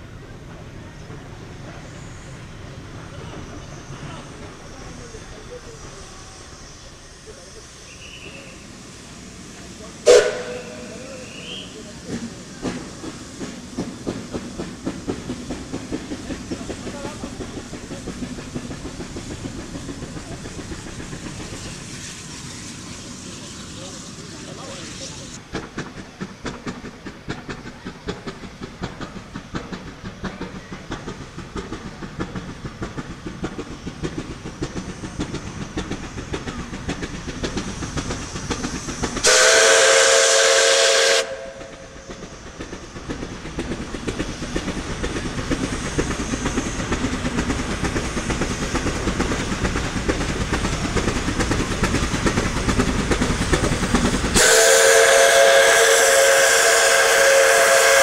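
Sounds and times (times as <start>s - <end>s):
steam locomotive exhaust beats: 0.0s - 58.0s
steam whistle: 10.1s - 11.8s, 39.2s - 42.0s, 54.4s - 58.0s.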